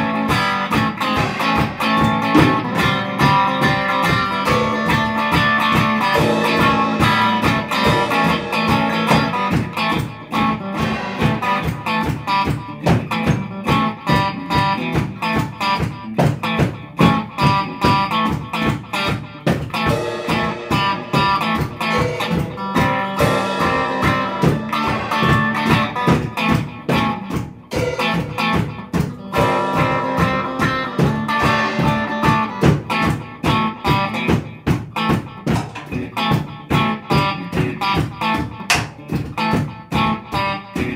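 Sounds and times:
drum kit steady beat: 0.0 - 40.9
electric guitars: 0.0 - 40.9.

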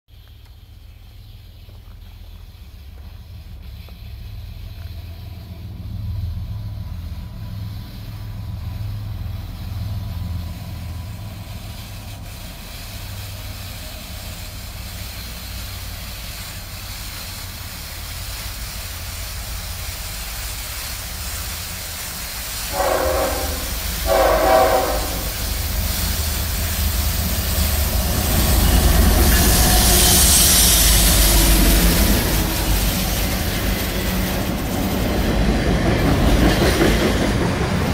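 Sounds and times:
diesel locomotive rumble: 0.2 - 37.9
locomotives rushing past: 21.6 - 37.9
train horn blasts: 22.7 - 25.5.

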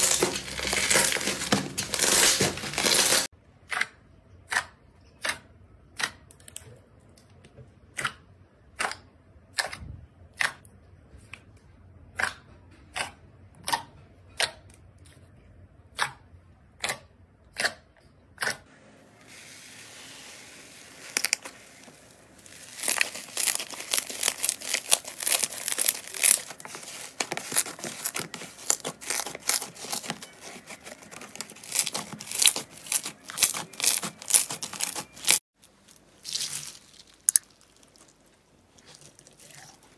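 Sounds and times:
crunchy slime crackling: 0.0 - 3.3, 20.6 - 39.9
slime popping: 22.5 - 35.4.

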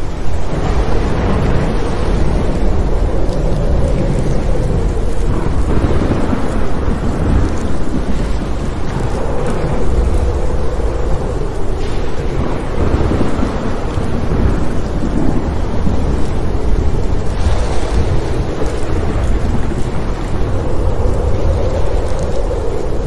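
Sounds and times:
steady rain hiss: 0.0 - 23.0
thunder rumbling: 0.0 - 23.0.

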